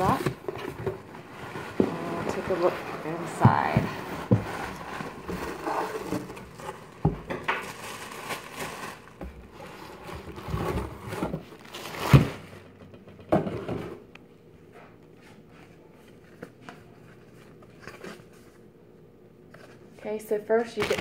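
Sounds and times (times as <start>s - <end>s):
cardboard box rustling and scraping: 0.0s - 7.0s, 7.7s - 12.4s.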